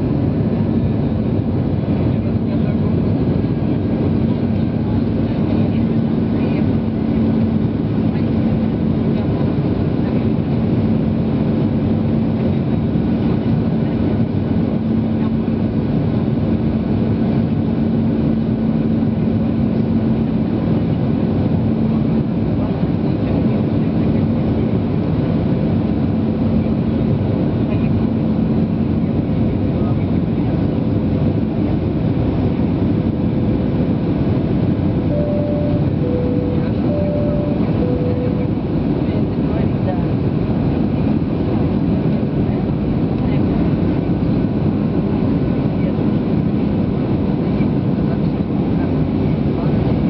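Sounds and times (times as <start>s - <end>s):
airplane cabin drone: 0.0s - 50.0s
constant low hum: 0.0s - 50.0s.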